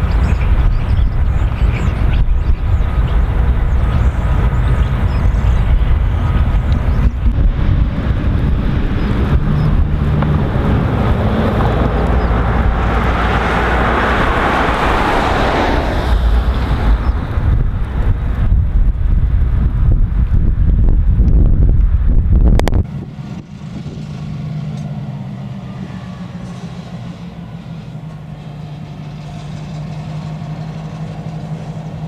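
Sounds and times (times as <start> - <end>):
wind on microphone: 0.0 - 24.4
diesel locomotive rumble: 0.0 - 32.0.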